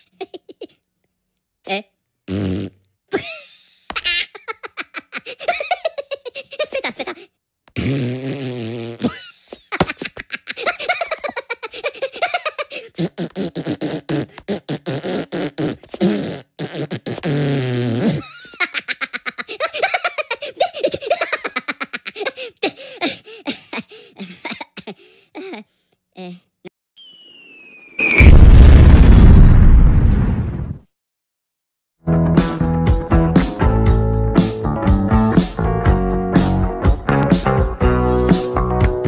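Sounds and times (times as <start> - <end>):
cartoon giggling: 0.0 - 0.8, 3.1 - 7.3, 9.0 - 13.6, 18.1 - 25.6
sputtering fart-like noises: 2.3 - 2.8, 7.8 - 9.2, 12.9 - 18.2
high-pitched gibberish voice: 26.2 - 26.7.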